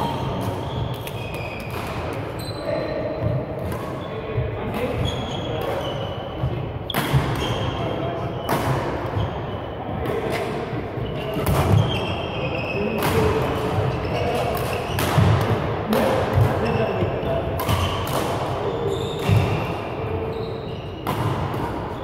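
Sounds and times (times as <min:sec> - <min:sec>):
shoes squeaking on court floor: 0:00.0 - 0:15.3, 0:16.4 - 0:22.0
racket striking shuttlecock: 0:17.6 - 0:18.5.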